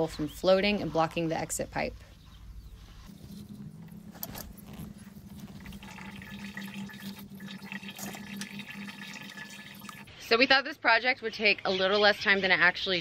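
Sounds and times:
steady low hum: 1.7s - 10.1s
water sloshing and trickling: 3.1s - 10.1s.

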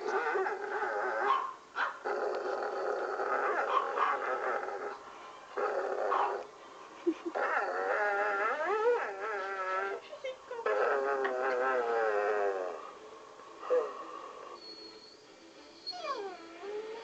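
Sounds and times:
small dog whining and howling: 7.4s - 10.0s, 15.8s - 17.0s.

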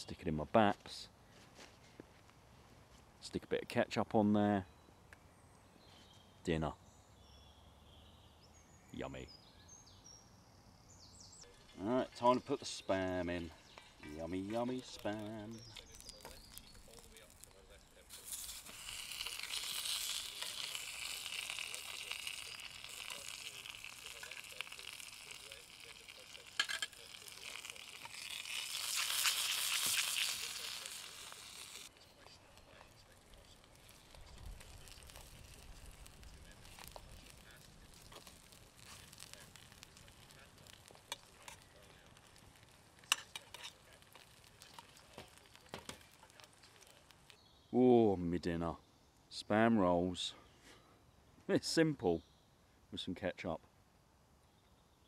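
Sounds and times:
meat sizzling in a frying pan: 13.6s - 47.4s
fat popping and spitting: 13.7s - 47.4s
metal tongs clicking and scraping: 26.6s - 27.0s, 43.0s - 45.0s.

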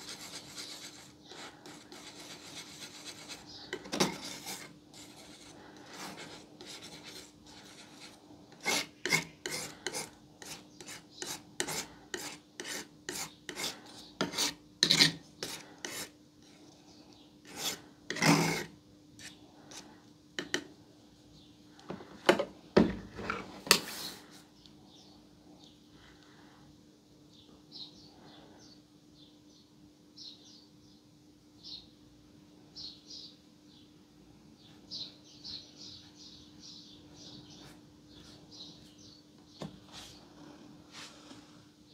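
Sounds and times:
palette knife scraping paint: 0.0s - 16.7s, 17.4s - 20.6s.

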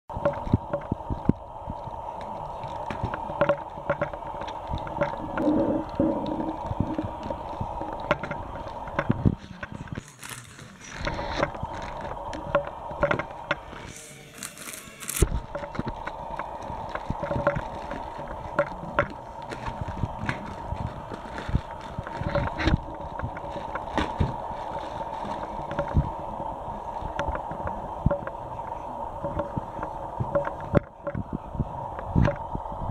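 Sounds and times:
crackles and clicks: 0.1s - 32.9s
faint hum: 0.1s - 32.9s
plastic crinkling: 0.2s - 28.3s
scissors cutting plastic: 9.4s - 12.2s, 13.1s - 26.0s.

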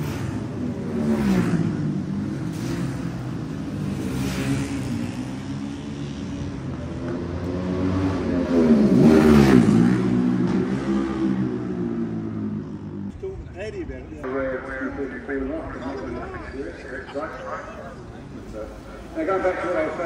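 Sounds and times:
racing motorcycles passing at speed: 0.0s - 13.1s.

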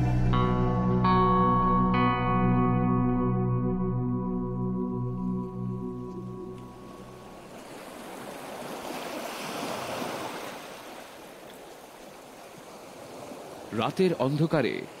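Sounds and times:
ambient music: 0.0s - 7.6s
wave washing up a beach: 7.4s - 15.0s.

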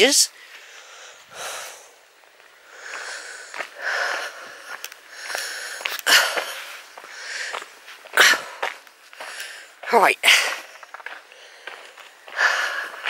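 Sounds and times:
heavy breathing: 0.4s - 13.0s.

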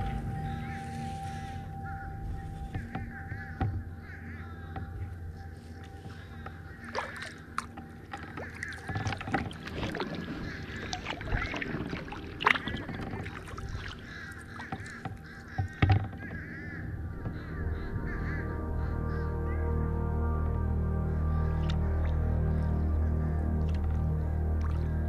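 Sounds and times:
birds calling: 0.0s - 25.0s
kayak paddle splashing: 5.8s - 16.8s, 23.6s - 25.0s.

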